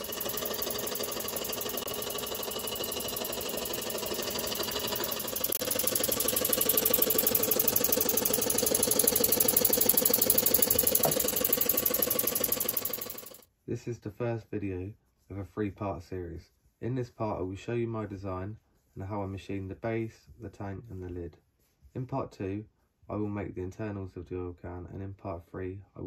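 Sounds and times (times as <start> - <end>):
model steam engines beating: 0.0 - 13.4.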